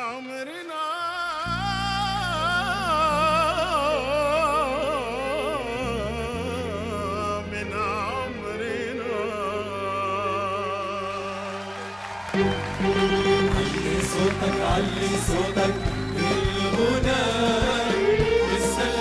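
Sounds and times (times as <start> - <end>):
man singing ornamented notes: 0.0 - 11.8.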